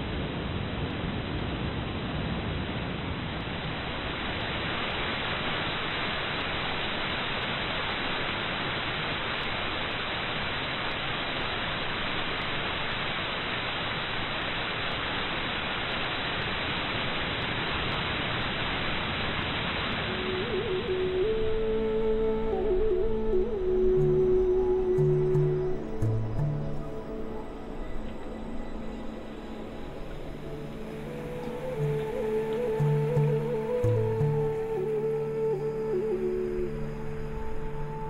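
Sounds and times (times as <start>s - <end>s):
steady hiss: 0.0s - 38.0s
held musical tones: 20.1s - 38.0s.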